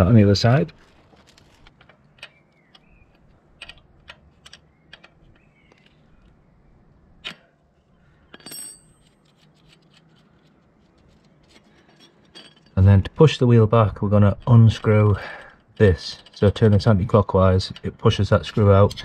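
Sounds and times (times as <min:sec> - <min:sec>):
short metallic ring: 0:08.4 - 0:09.3
metal spanner clicks and clinks: 0:11.4 - 0:12.8, 0:16.0 - 0:16.9.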